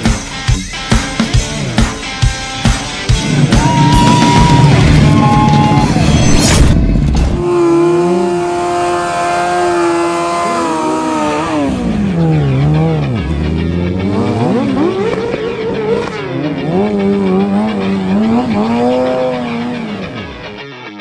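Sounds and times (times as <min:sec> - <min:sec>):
motorcycle engine revving: 0:06.7 - 0:20.6.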